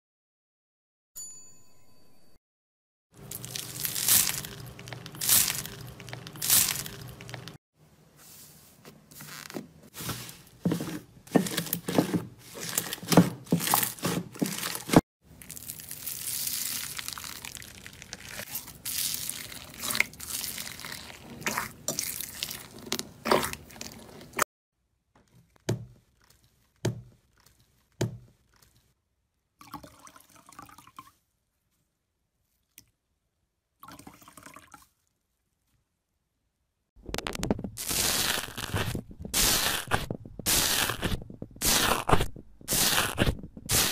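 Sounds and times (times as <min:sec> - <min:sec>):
crunchy slime crackling: 0:03.2 - 0:07.6, 0:12.6 - 0:24.4, 0:37.0 - 0:43.9
wet slime squelching: 0:03.3 - 0:07.6, 0:09.3 - 0:24.4, 0:37.8 - 0:43.9.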